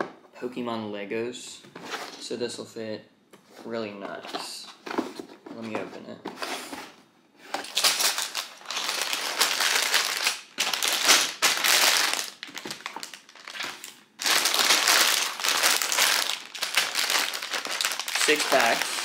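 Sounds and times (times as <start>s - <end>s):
plastic bags crinkling: 7.5s - 19.0s.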